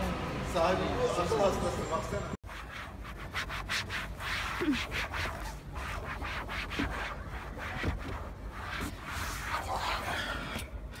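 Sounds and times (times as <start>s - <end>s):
rubbing and scraping on car door panel: 2.5s - 10.1s.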